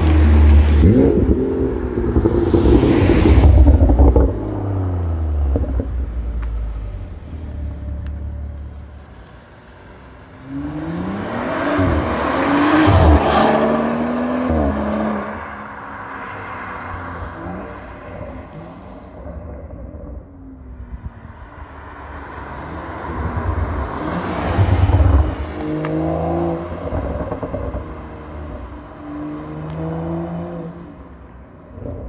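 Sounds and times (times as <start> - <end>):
engine revving through upshifts: 0.0 - 6.0, 10.4 - 15.7
car exhaust under hard acceleration: 0.0 - 32.0.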